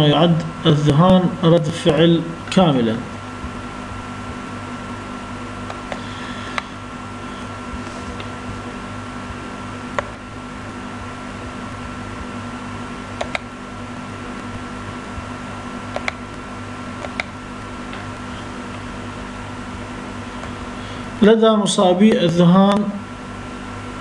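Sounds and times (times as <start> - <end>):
electrical hum: 0.0 - 24.0
computer mouse clicks: 13.2 - 13.5, 15.9 - 16.2, 17.0 - 17.3.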